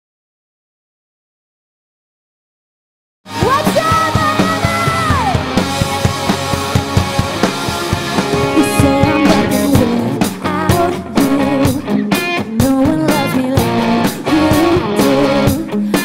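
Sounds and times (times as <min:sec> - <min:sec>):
country rock band music: 0:03.3 - 0:16.0
drum kit beat: 0:03.3 - 0:16.0.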